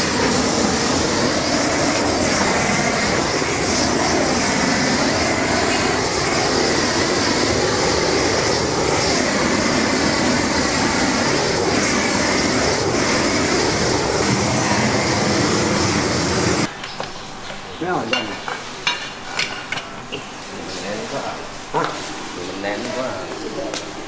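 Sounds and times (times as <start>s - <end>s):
blowtorch flame rushing: 0.0s - 16.7s.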